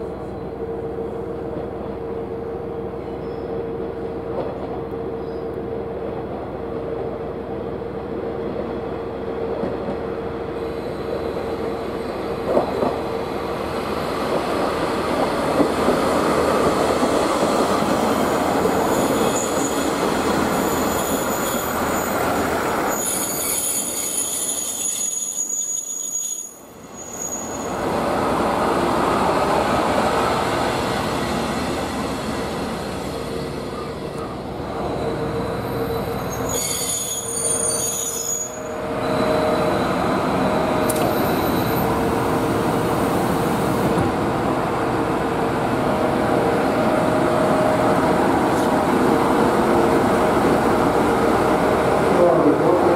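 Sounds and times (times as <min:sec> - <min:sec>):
diesel railcar engine and rail noise: 0:00.0 - 0:52.9
wheel and brake squeal: 0:18.8 - 0:20.0, 0:20.6 - 0:27.8, 0:33.4 - 0:42.0.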